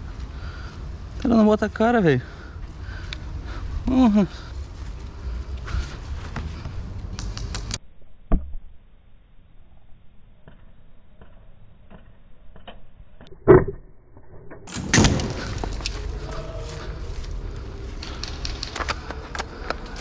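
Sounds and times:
faint scattered clicks: 17.9 - 20.0.

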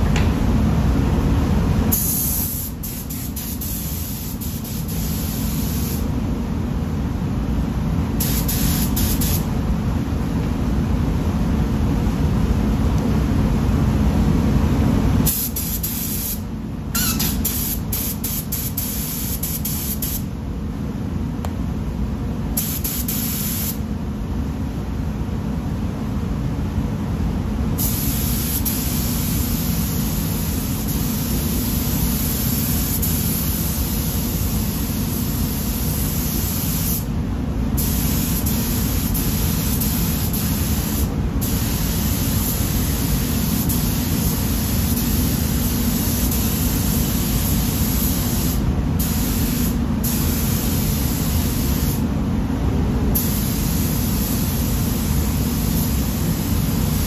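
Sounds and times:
spray gun hissing: 1.9 - 6.1, 8.2 - 9.5, 15.3 - 16.4, 17.0 - 20.3, 22.6 - 23.8, 27.8 - 37.1, 37.8 - 52.0, 53.2 - 57.0.

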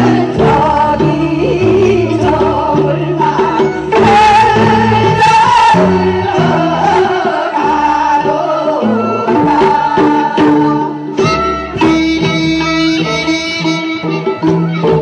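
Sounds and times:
women singing into microphones: 0.0 - 11.2
amplified backing music: 0.0 - 15.0.

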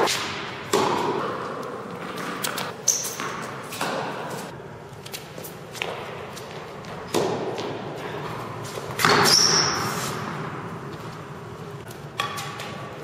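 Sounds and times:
racket striking tennis ball: 0.0 - 4.4.

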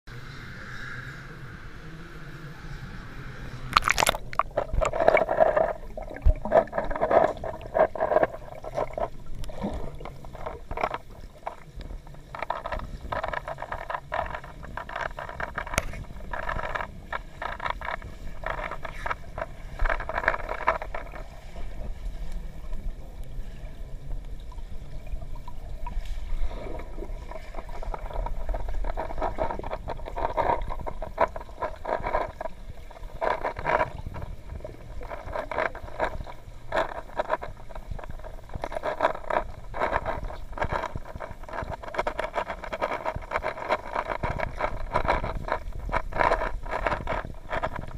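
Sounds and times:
underwater gurgling water: 0.6 - 47.9
short clicks and scrapes: 3.7 - 21.3, 27.3 - 47.9.

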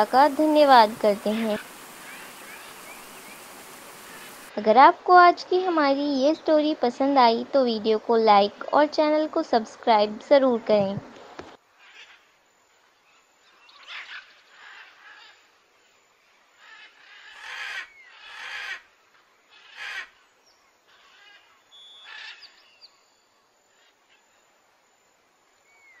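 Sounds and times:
faint bird chirps: 1.3 - 4.5, 11.8 - 18.5, 19.6 - 26.0.

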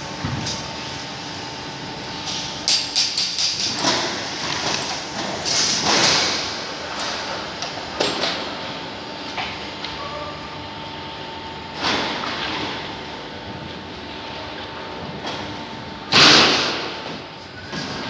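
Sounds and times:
machinery high hum: 0.0 - 18.0.

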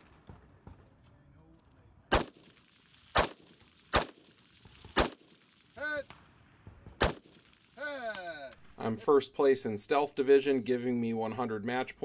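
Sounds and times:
rifle shots: 2.1 - 8.3.

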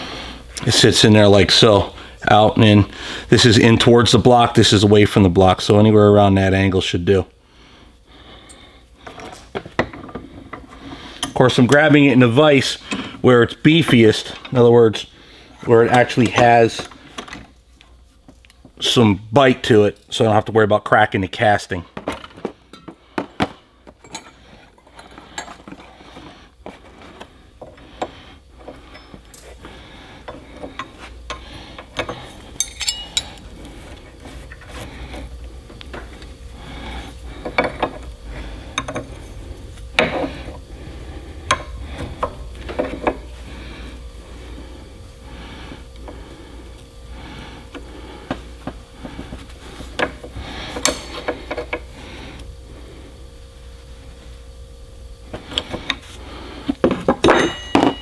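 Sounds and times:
steady low hum: 0.0 - 58.0
metal clinks and scraping: 24.0 - 26.0, 28.7 - 29.6, 30.8 - 34.7, 57.0 - 58.0.

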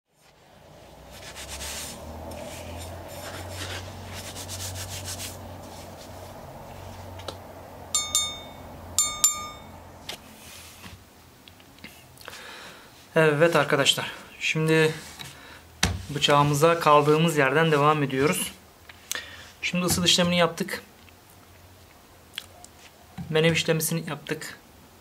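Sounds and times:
gloved hands scraping gritty material: 1.1 - 6.2
low steady hum: 3.9 - 10.2
sharp metallic rings: 7.9 - 9.9.

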